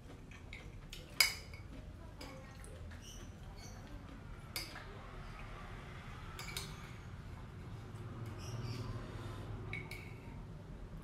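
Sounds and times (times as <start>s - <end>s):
metal spoon clinking on plate: 6.4s - 7.0s.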